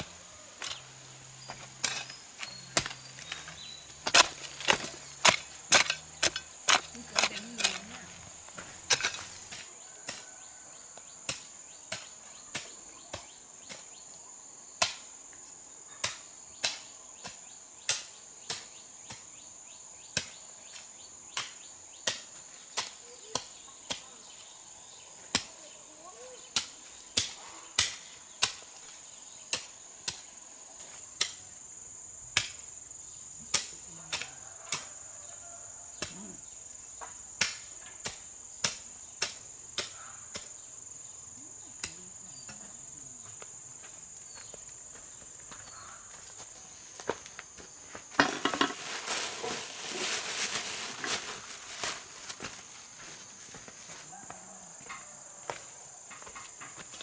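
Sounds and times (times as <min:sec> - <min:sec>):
insects droning: 0:00.0 - 0:57.0
hoe chopping into soil: 0:01.4 - 0:08.0, 0:08.6 - 0:10.2.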